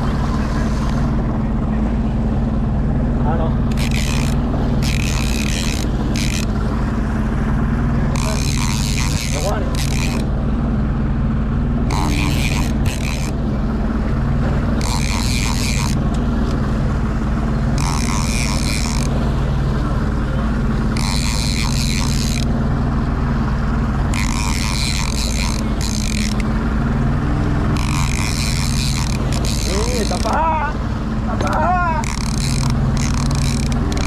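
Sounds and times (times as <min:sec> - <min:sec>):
boat engine drone: 0:00.0 - 0:34.0
high rasping whir: 0:00.0 - 0:34.0.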